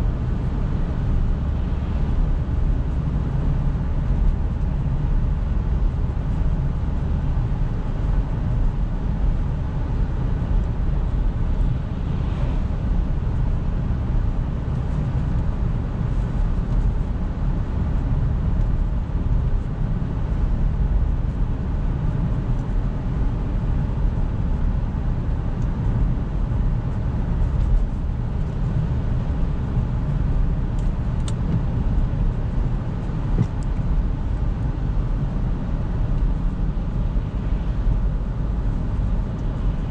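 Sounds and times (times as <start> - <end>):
low engine hum in car cabin: 0.0 - 39.9
tyre and road rumble: 25.8 - 39.9.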